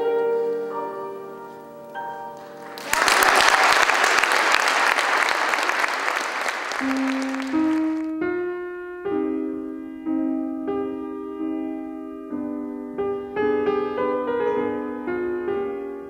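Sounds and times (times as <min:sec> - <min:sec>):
piano notes and chords: 0:00.0 - 0:02.9, 0:06.7 - 0:16.0
audience applauding: 0:02.4 - 0:08.1.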